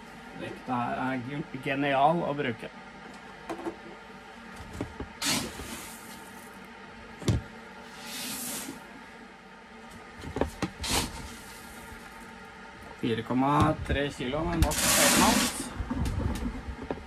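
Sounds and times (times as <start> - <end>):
grain rustling and pouring: 5.2 - 6.5.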